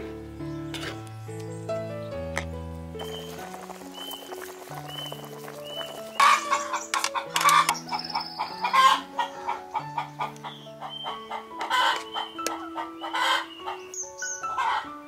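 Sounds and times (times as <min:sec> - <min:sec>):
soft instrumental music: 0:00.0 - 0:15.0
chickens clucking: 0:03.0 - 0:13.9.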